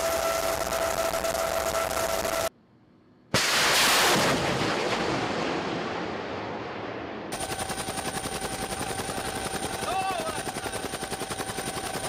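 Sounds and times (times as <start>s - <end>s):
loud explosion blast rumbling: 3.4s - 7.4s.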